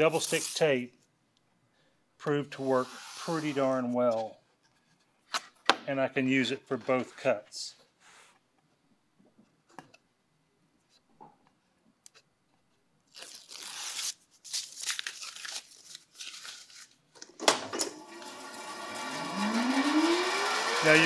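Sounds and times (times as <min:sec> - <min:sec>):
tape backing being peeled: 0:13.0 - 0:17.0
bandsaw motor starting: 0:17.8 - 0:21.0.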